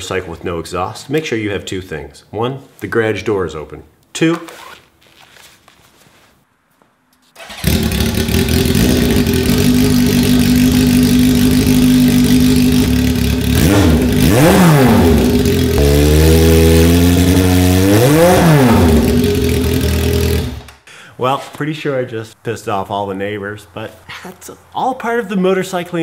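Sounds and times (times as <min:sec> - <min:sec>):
motorcycle engine revving raspy: 0:07.4 - 0:20.7.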